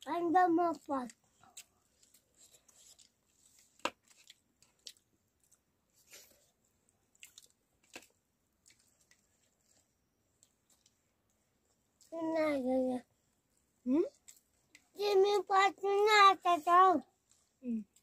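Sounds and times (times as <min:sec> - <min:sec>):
people chewing: 0:00.7 - 0:12.2.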